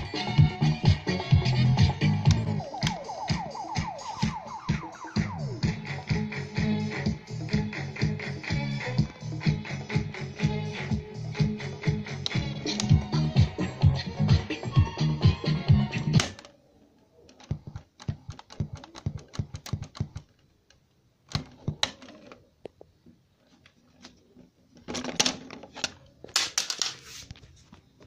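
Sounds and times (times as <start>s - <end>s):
music with a beat: 0.0s - 16.3s
cassette player buttons clicking: 12.2s - 13.2s.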